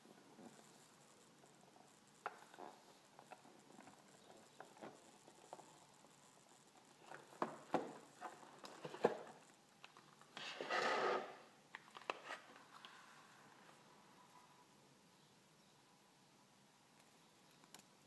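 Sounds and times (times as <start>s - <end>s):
plastic lid scraping off box: 10.4s - 11.5s.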